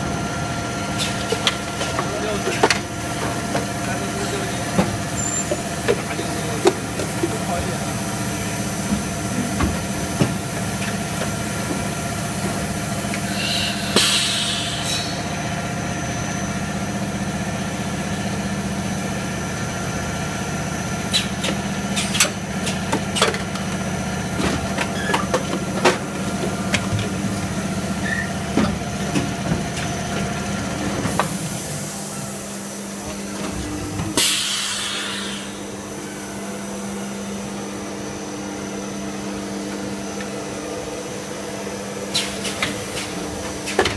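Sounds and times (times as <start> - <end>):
burst of hiss: 13.3 - 15.1.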